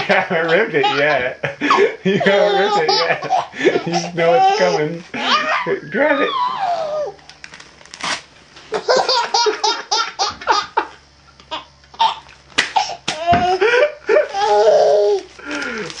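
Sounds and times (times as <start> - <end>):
baby laughing: 0.0 - 7.2, 8.8 - 10.8, 12.8 - 15.2.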